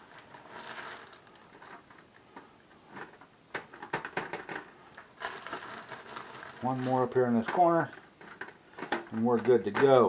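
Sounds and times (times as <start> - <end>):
foil crinkling: 0.0 - 2.0, 4.0 - 8.5
faint rustling: 0.0 - 10.0.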